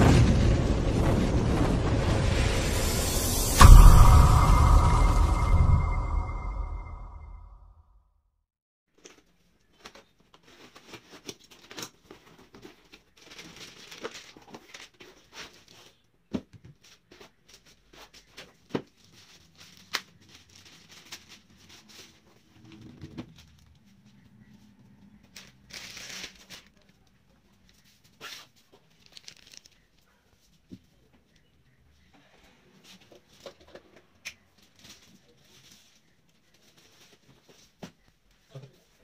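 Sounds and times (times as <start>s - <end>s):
plastic sleeve crinkling and tearing: 9.8s - 15.8s, 25.4s - 26.9s, 28.2s - 29.9s.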